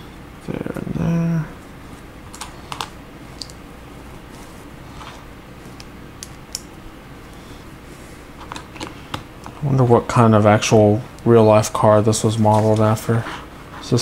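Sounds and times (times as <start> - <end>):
person humming: 0.7 - 1.6.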